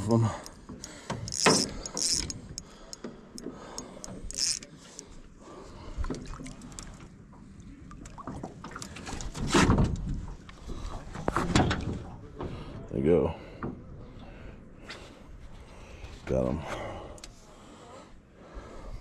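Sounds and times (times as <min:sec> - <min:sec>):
small clicks and knocks: 0:00.4 - 0:04.7.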